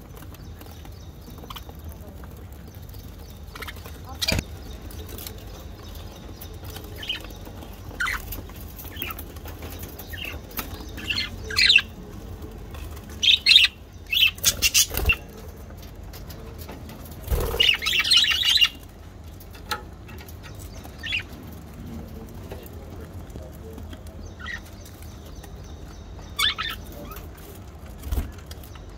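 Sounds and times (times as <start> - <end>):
budgerigars chirping and squawking: 0.2 - 12.1, 12.7 - 19.6, 20.4 - 21.7, 24.2 - 28.9
wing flutters: 17.2 - 18.7.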